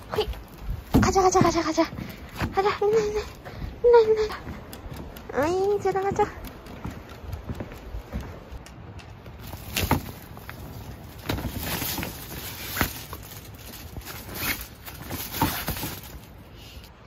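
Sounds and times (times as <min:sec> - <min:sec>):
fabric rustling: 0:09.4 - 0:16.5.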